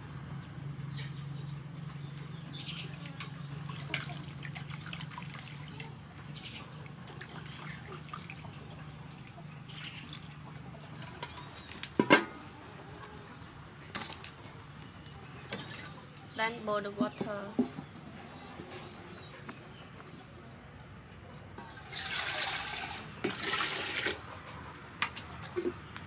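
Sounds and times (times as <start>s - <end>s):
water splashing in a metal bowl: 2.9s - 12.4s, 21.6s - 24.2s.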